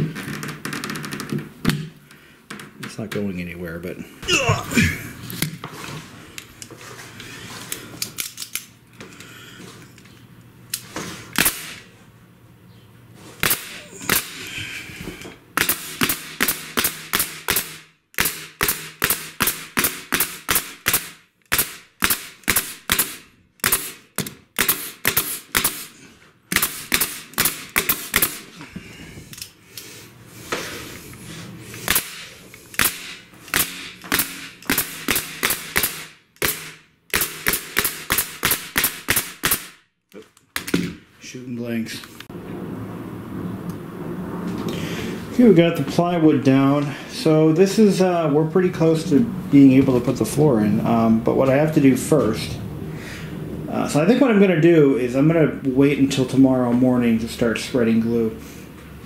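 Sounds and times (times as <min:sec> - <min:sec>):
nail gun firing into plywood: 0:11.4 - 0:11.8, 0:13.4 - 0:14.4, 0:15.6 - 0:25.9, 0:26.5 - 0:28.5, 0:31.8 - 0:39.8.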